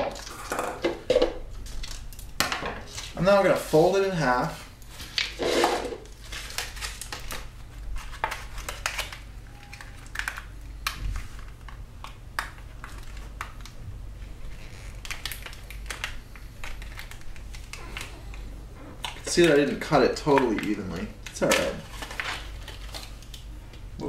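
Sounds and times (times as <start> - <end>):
plastic bottle crinkling: 14.4 - 23.5.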